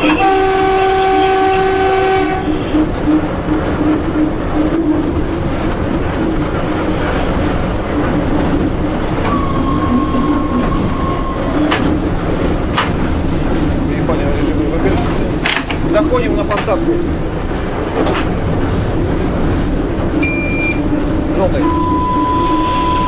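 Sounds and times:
train horn: 0:00.0 - 0:03.0, 0:22.0 - 0:23.0
locomotive running noise: 0:00.0 - 0:23.0
wheel clatter over rail joints: 0:00.0 - 0:23.0
steady high tone: 0:21.6 - 0:23.0.

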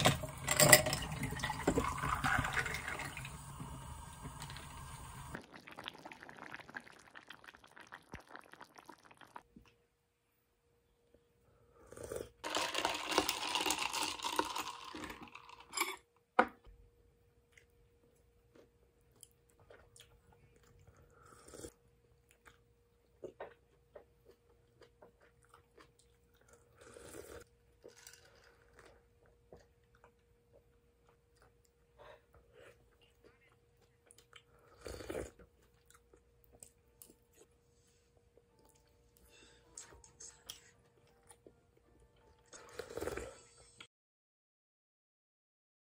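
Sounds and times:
quiet chewing: 0:17.4 - 0:43.5.

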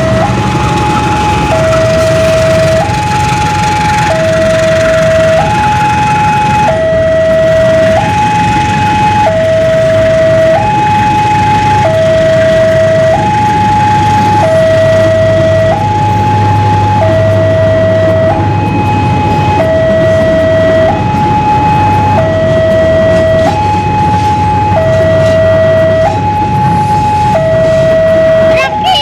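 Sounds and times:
level crossing two-tone alarm: 0:00.0 - 0:29.0
train rumbling past: 0:00.0 - 0:29.0.

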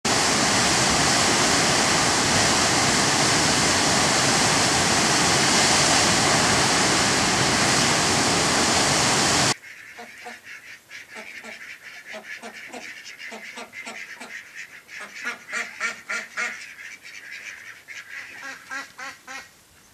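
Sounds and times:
waterfall rushing: 0:00.1 - 0:09.6
ducks quacking: 0:09.5 - 0:19.5.

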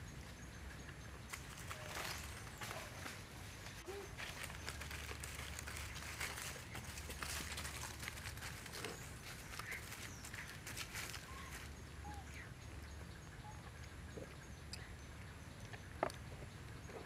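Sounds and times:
rustling in dry leaves: 0:01.3 - 0:12.4.

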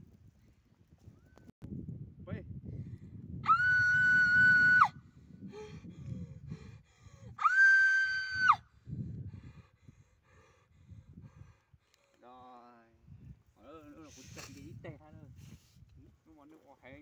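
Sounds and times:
woman screaming: 0:03.4 - 0:04.9, 0:07.4 - 0:08.6.

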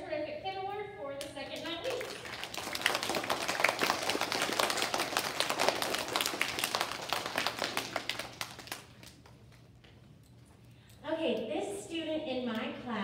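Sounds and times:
children clapping: 0:01.6 - 0:09.4.

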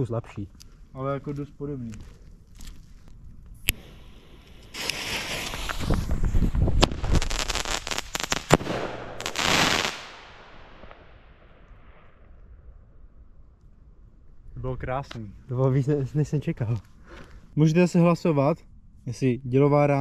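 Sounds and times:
firework hissing and cracking: 0:03.7 - 0:11.2.

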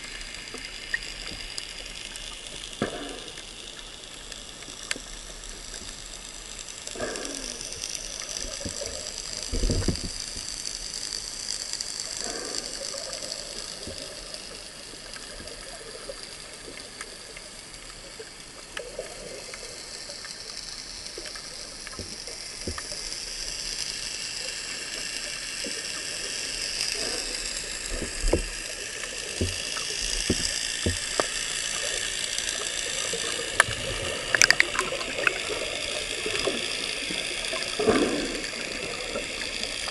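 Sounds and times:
underwater rush of water: 0:00.0 - 0:39.9
underwater clicks: 0:02.5 - 0:14.3, 0:18.7 - 0:23.2, 0:26.5 - 0:39.9
dull knocks: 0:30.2 - 0:31.2.

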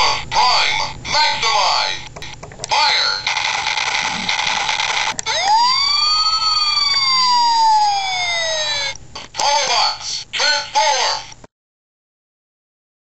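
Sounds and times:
harsh electronic hissing blast: 0:03.0 - 0:05.2.

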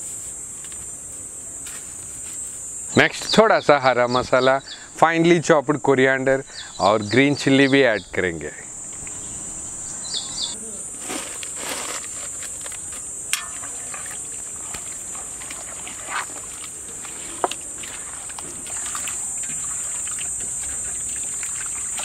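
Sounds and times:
high insect buzz: 0:00.0 - 0:22.0
hand squelching in marinade: 0:13.4 - 0:22.0.

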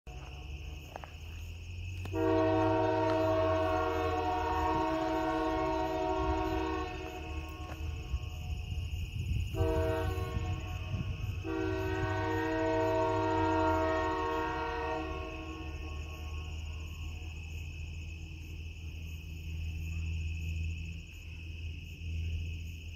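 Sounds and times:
locomotive air horn blasts: 0:02.1 - 0:08.6, 0:09.5 - 0:17.3.

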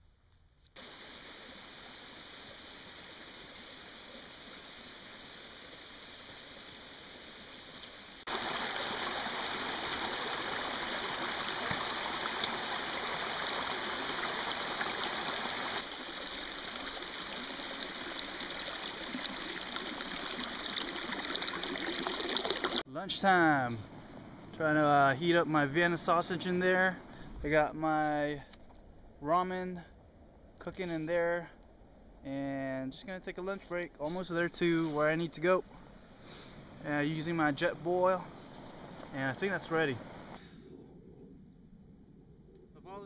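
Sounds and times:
creek water splashing over rocks: 0:03.2 - 0:22.8.

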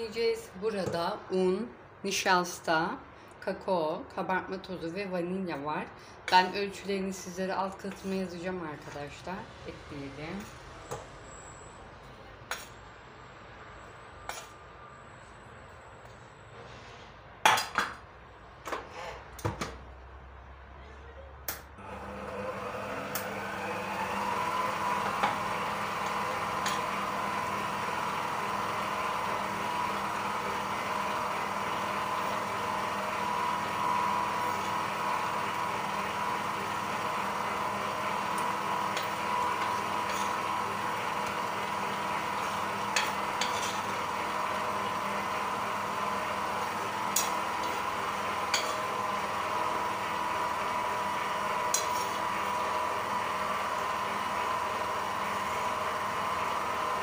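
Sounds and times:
stand mixer motor whine: 0:21.8 - 0:57.0.

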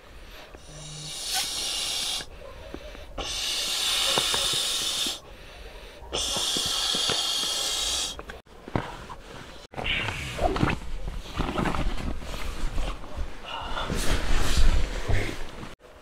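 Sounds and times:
person blowing into pillow valve: 0:00.6 - 0:02.3, 0:03.2 - 0:05.2, 0:06.1 - 0:08.2.

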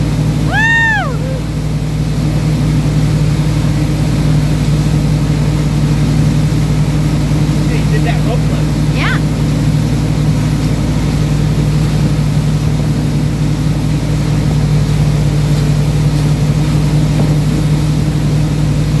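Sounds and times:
boat engine droning: 0:00.0 - 0:19.0
water churning in wake: 0:00.0 - 0:19.0.

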